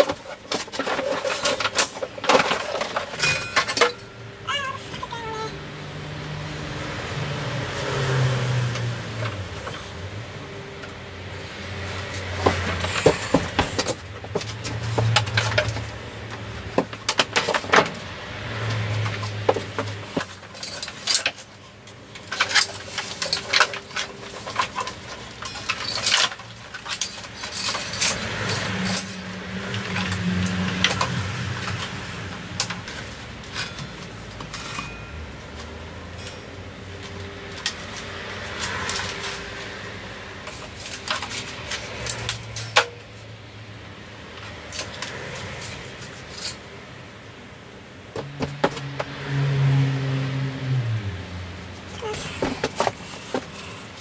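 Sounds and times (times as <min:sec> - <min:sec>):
metal tools clanking: 0:00.0 - 0:05.5, 0:18.6 - 0:31.9, 0:32.6 - 0:39.8, 0:51.9 - 0:54.0.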